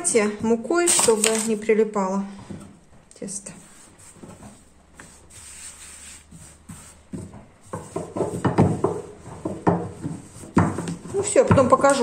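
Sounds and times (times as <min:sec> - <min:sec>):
rolling pin rubbing on dough: 0:03.3 - 0:12.0.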